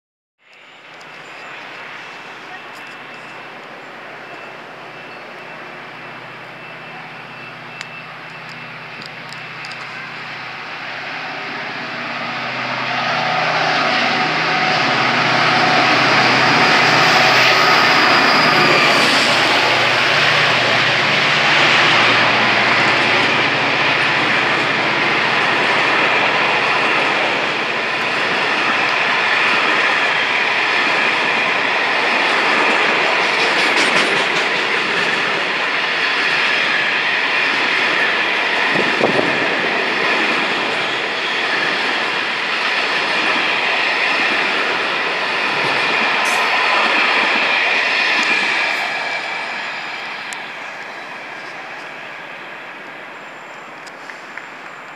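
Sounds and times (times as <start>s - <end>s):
train rushing noise: 0.5s - 54.9s
train wheels clattering on rails: 21.4s - 52.0s.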